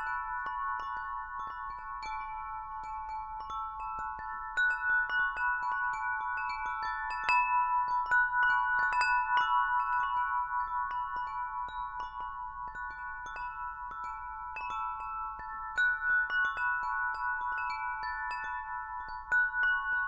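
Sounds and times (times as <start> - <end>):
wind chime ringing: 0.0 - 20.0.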